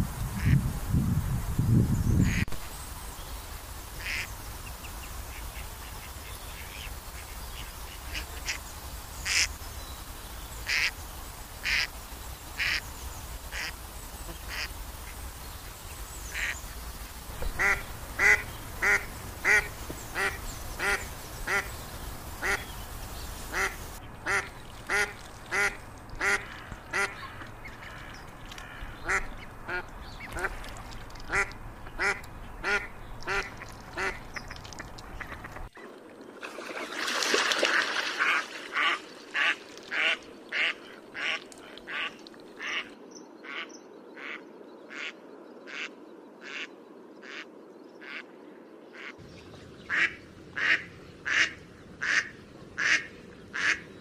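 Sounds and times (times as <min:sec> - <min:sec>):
ducks quacking: 0:02.2 - 0:02.5, 0:04.0 - 0:04.3, 0:09.2 - 0:09.5, 0:11.6 - 0:11.9, 0:13.5 - 0:15.2, 0:17.4 - 0:21.8, 0:22.4 - 0:22.8, 0:23.4 - 0:30.7, 0:31.3 - 0:34.5, 0:35.2 - 0:35.7, 0:38.1 - 0:48.3, 0:49.0 - 0:49.2, 0:49.9 - 0:53.9.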